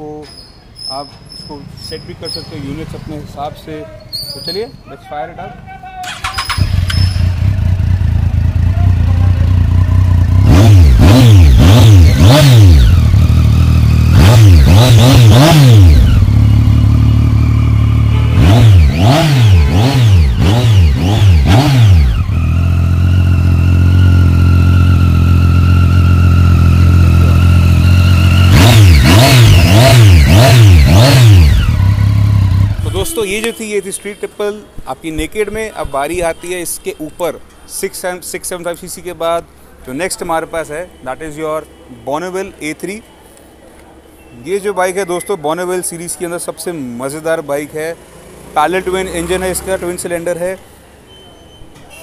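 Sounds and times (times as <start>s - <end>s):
motorcycle engine idling and revving: 6.1s - 33.3s, 47.0s - 50.5s.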